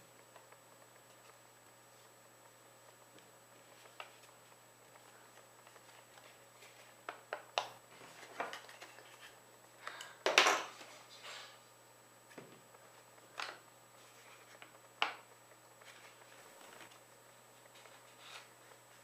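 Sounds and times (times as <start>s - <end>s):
paper crackling: 2.9s - 7.1s, 15.8s - 19.0s
paper rustling: 3.2s - 7.0s, 7.9s - 9.4s, 14.0s - 14.8s, 15.8s - 19.0s.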